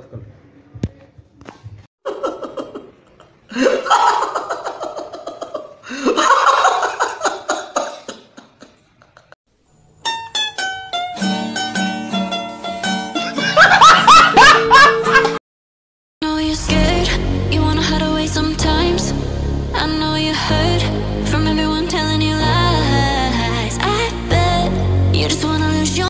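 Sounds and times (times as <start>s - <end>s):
plucked-string music: 10.0s - 13.6s.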